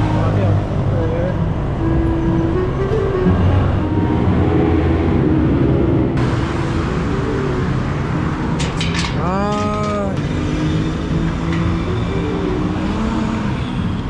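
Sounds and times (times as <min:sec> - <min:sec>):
road noise: 0:00.0 - 0:14.0
vehicle engine hum: 0:00.0 - 0:14.0
pitched tone: 0:01.4 - 0:08.6.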